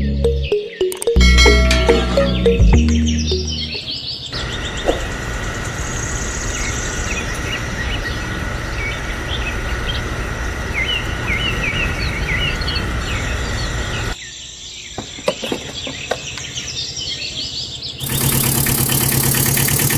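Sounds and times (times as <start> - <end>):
birds chirping: 0.0 - 19.1
insect drone: 4.4 - 14.9
engine idling: 18.0 - 19.9.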